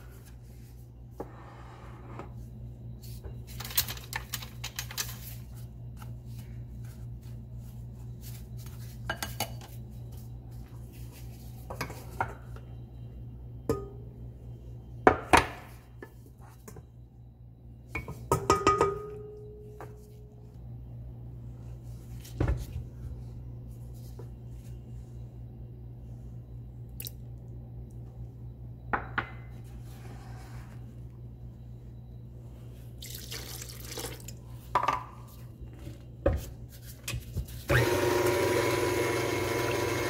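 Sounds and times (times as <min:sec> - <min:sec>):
steady low hum: 0:00.0 - 0:39.1.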